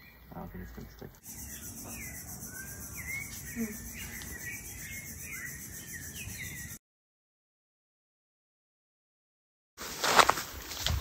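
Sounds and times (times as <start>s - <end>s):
birds chirping: 0.0s - 6.8s
high-pitched insect chorus: 1.2s - 6.8s.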